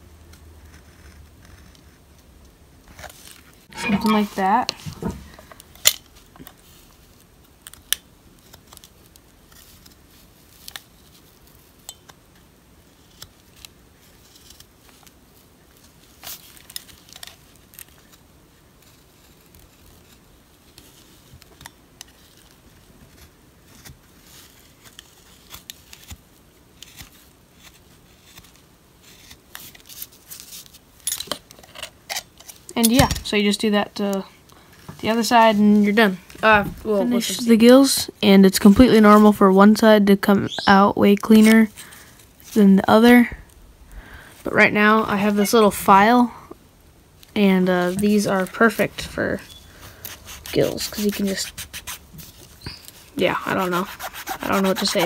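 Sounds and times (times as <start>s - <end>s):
knife blade scraping wood: 53.8s - 55.0s.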